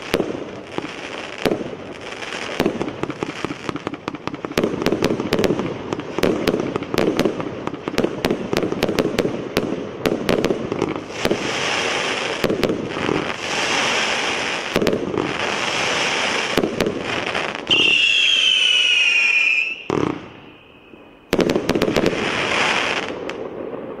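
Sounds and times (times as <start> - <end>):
dense firework crackling: 0.0 - 24.0
firework whistle: 13.0 - 23.4.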